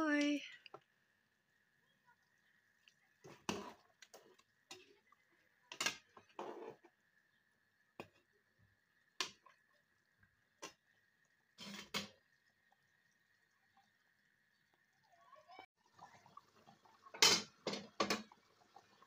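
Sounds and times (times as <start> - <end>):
spoon scraping pot: 3.2 - 5.1, 5.7 - 7.0, 11.6 - 12.1.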